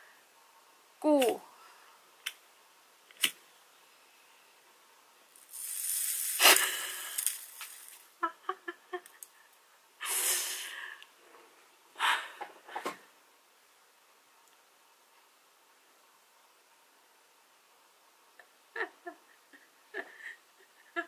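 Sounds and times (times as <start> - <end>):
woman laughing: 8.2 - 9.2, 18.7 - 21.0.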